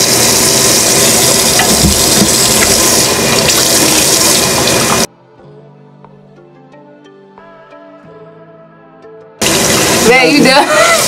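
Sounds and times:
sink tap running: 0:00.0 - 0:05.1, 0:09.4 - 0:11.0
soft background music: 0:05.1 - 0:10.6.

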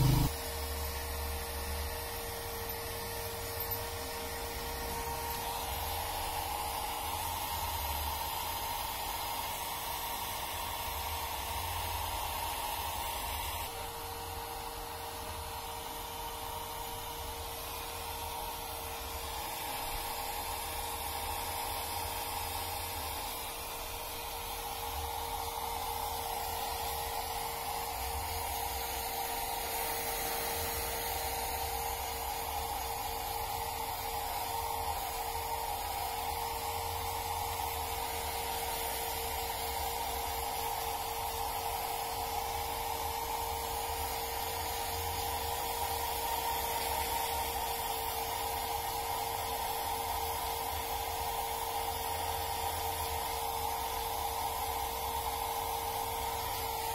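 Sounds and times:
hair dryer running: 0:00.0 - 0:56.9.

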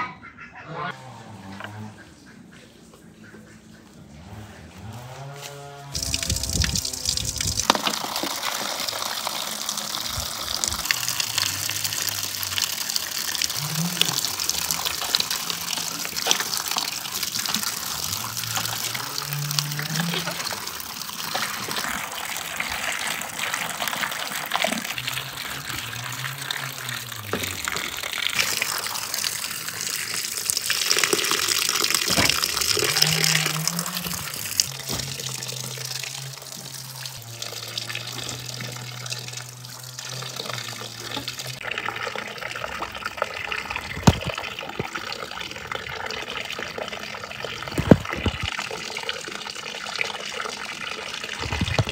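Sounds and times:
hands rinsing berries: 0:06.0 - 0:42.0, 0:42.7 - 0:46.2, 0:47.4 - 0:48.7, 0:51.3 - 0:51.9
water splashing into metal basin: 0:06.0 - 0:51.9.

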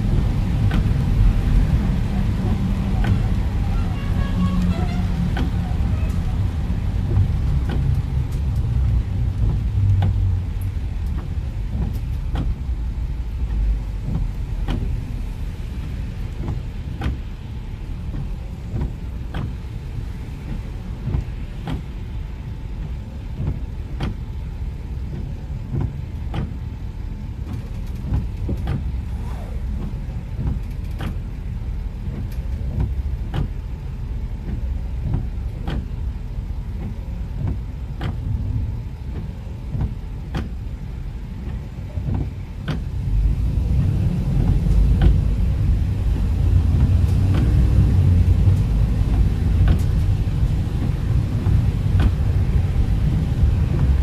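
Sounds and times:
car driving on wet road: 0:00.0 - 0:54.0
windshield wipers knocking: 0:00.0 - 0:54.0.

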